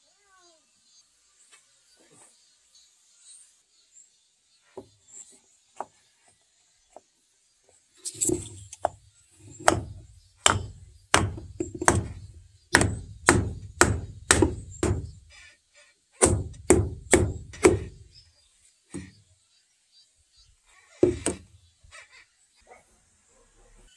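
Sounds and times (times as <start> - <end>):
hammer striking wood block: 9.6 - 15.2, 16.2 - 18.0.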